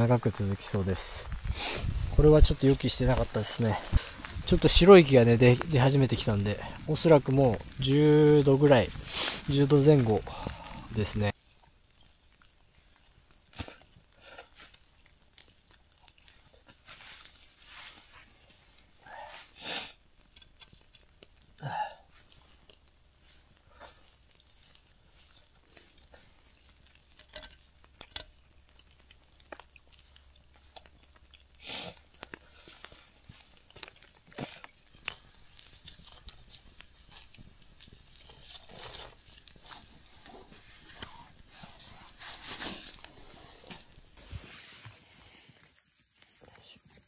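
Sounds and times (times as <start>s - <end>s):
fire crackles: 0.0s - 47.0s
faint sizzling: 22.1s - 46.4s.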